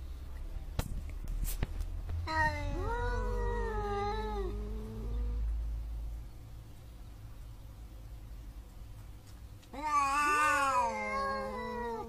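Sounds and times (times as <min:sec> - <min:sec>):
cats caterwauling: 0:02.2 - 0:05.5, 0:09.7 - 0:12.0.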